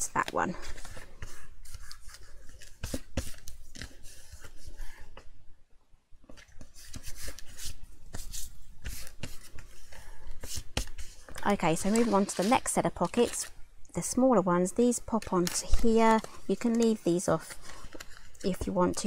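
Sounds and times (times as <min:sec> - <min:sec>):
paper rustling: 0:06.3 - 0:13.5, 0:14.8 - 0:19.0
hands rubbing card: 0:06.6 - 0:13.4.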